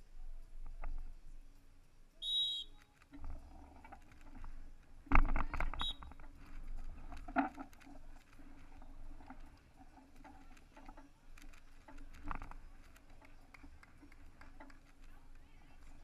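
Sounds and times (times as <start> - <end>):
referee's whistle: 2.2 - 2.8, 5.8 - 6.1.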